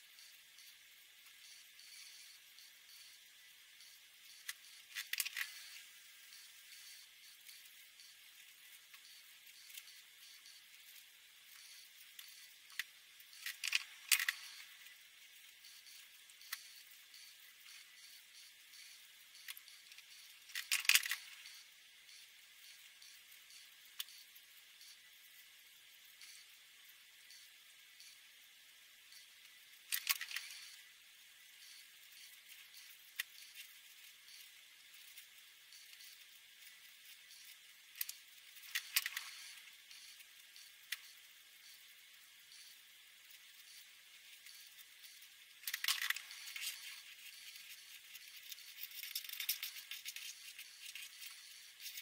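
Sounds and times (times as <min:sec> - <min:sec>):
marker scratching on paper: 0:46.1 - 0:52.0.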